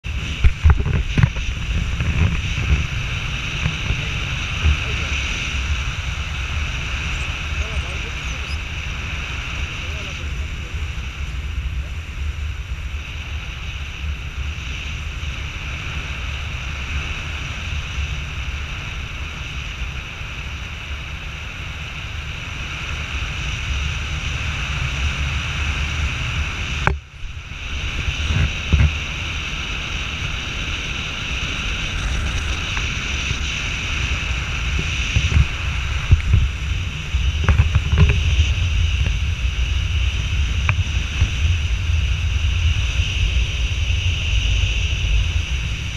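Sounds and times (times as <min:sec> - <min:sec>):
paramotor engine running: 0:00.0 - 0:45.9
wind buffeting microphone: 0:00.0 - 0:45.9.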